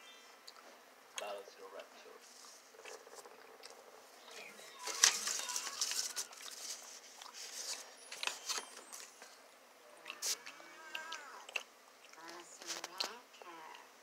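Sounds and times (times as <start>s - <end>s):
paper rustling and crackling: 4.4s - 9.4s.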